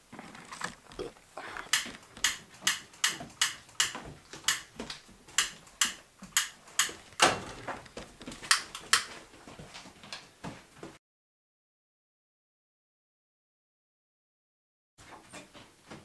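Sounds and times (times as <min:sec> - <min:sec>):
sharp clicks and knocks: 0:01.6 - 0:09.2.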